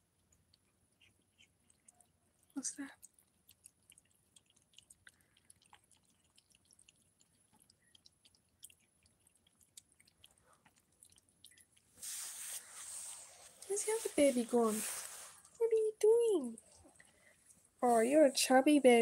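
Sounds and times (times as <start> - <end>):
cats chewing wet food: 0.0 - 12.1, 14.9 - 17.8.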